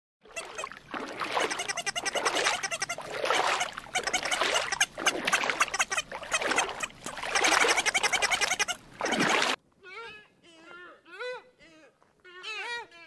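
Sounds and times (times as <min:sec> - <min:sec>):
penguins braying: 0:01.4 - 0:08.8.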